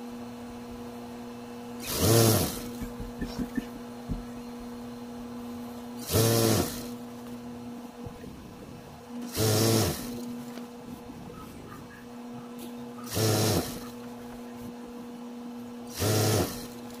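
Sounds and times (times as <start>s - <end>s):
sewing machine motor hum: 1.8s - 4.7s, 5.6s - 7.5s, 9.2s - 10.6s, 12.8s - 14.4s, 15.8s - 17.0s
sewing machine stitching: 6.0s - 6.9s, 13.0s - 14.0s, 15.9s - 17.0s.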